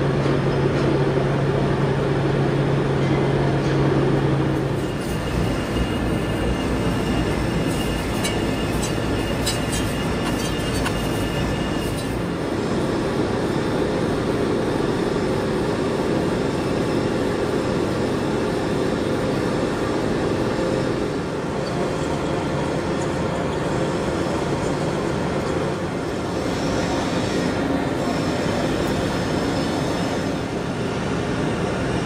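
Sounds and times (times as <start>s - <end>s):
machine tool running: 4.6s - 13.6s.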